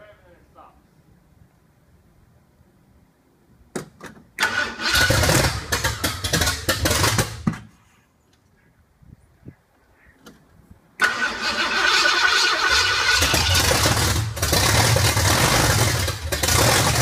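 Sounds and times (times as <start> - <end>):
engine starter cranking: 4.4 - 7.4, 11.0 - 17.0.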